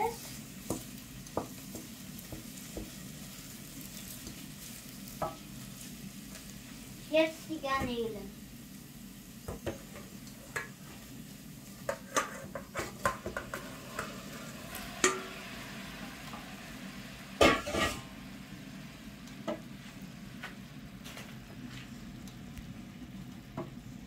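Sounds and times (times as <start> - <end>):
food sizzling in a pot: 0.0 - 24.0
wooden spoon scraping a pot: 11.8 - 15.2.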